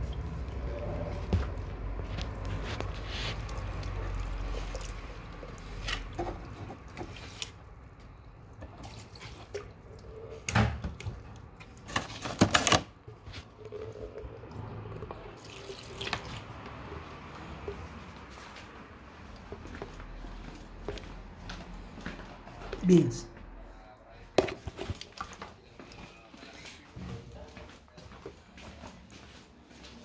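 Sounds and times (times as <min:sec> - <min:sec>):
water pouring onto plants: 0:02.0 - 0:06.1, 0:14.7 - 0:16.9.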